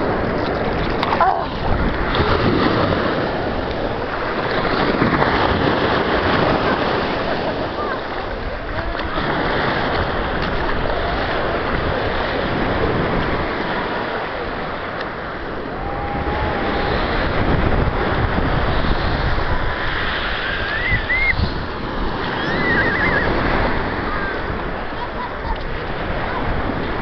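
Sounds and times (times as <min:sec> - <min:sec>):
sea surf rushing: 0:00.0 - 0:27.0
wind buffeting microphone: 0:00.0 - 0:27.0
faint high wavering cries: 0:22.3 - 0:23.3.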